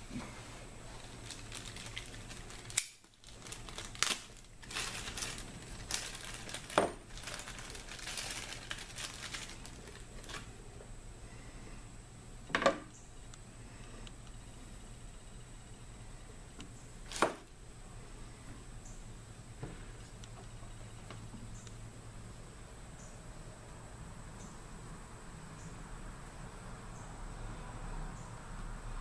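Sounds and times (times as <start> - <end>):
rustling plastic: 0.3 - 10.6, 17.0 - 17.5.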